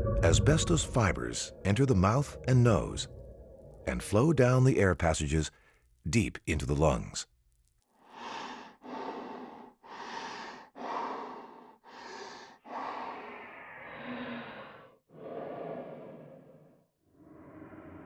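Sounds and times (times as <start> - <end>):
person breathing: 8.0 - 16.8.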